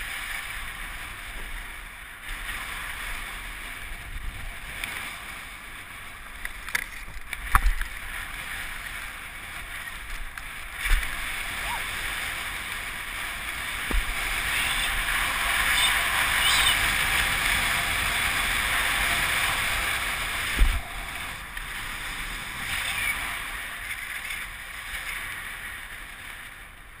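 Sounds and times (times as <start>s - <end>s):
wind rushing over a camera: 0.0s - 27.0s
skis hissing over snow: 7.9s - 26.6s.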